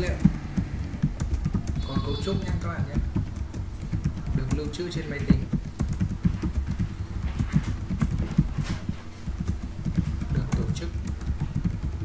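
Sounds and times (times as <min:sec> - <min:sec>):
typing on computer keyboard: 0:00.0 - 0:12.0.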